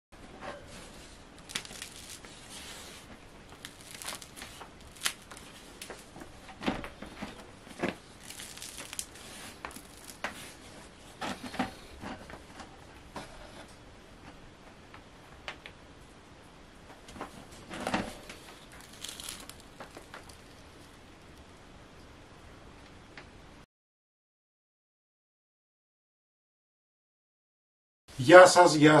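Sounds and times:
rustling: 0:00.5 - 0:13.7, 0:16.9 - 0:21.6
bread crusts crackling: 0:00.8 - 0:12.4, 0:16.9 - 0:21.6.

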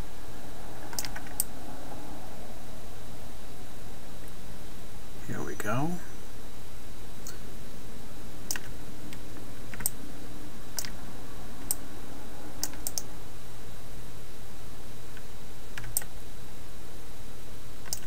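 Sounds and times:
low electrical hum and hiss: 0:00.0 - 0:18.0
computer mouse clicks: 0:00.9 - 0:01.5, 0:08.5 - 0:08.7, 0:09.7 - 0:10.0, 0:10.8 - 0:11.0, 0:12.6 - 0:13.1, 0:15.1 - 0:16.1
keyboard clicks: 0:00.9 - 0:01.5, 0:09.7 - 0:10.0, 0:15.8 - 0:16.1.

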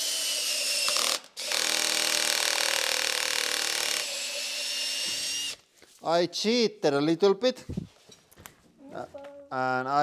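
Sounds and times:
cordless drill cutting acrylic: 0:00.0 - 0:05.6.

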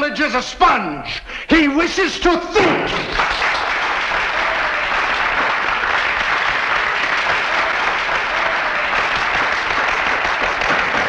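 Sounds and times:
crowd applauding: 0:02.9 - 0:11.0.

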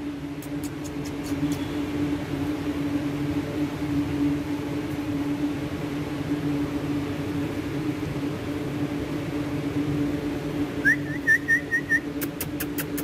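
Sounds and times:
low electric hum: 0:00.0 - 0:13.0
high chirping whistled notes: 0:10.8 - 0:12.1
rising whistle: 0:10.8 - 0:12.1.

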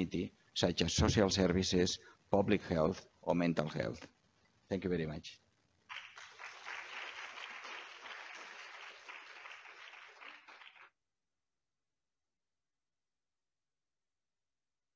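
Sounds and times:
audience applauding: 0:05.9 - 0:11.0.

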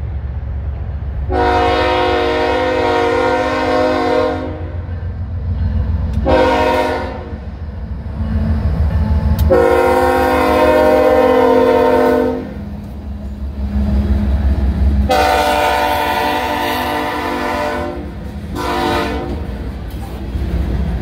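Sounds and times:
low rumble of passing train: 0:00.0 - 0:21.0
locomotive air horn blasts: 0:01.3 - 0:04.8, 0:06.2 - 0:07.4, 0:09.5 - 0:12.6, 0:15.1 - 0:19.4.

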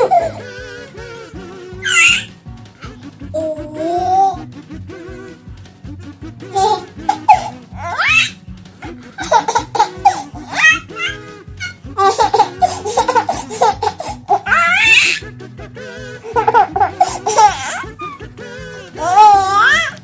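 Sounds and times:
baby laughing and squealing: 0:00.0 - 0:01.0, 0:01.8 - 0:02.3, 0:03.4 - 0:04.4, 0:06.5 - 0:08.4, 0:09.2 - 0:15.2, 0:16.2 - 0:18.2, 0:19.0 - 0:20.0
background music: 0:00.0 - 0:20.0.

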